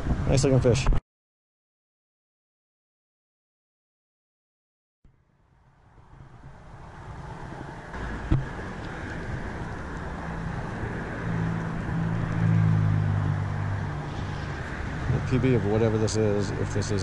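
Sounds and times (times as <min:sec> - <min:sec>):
road traffic hum: 0:05.1 - 0:17.0.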